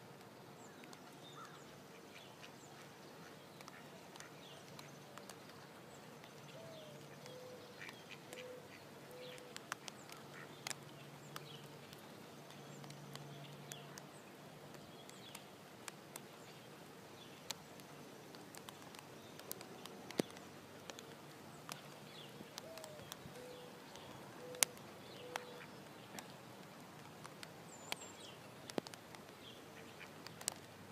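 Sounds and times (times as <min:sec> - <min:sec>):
ducks calling softly: 0:00.6 - 0:30.9
light clicks: 0:06.2 - 0:14.1, 0:17.4 - 0:30.8.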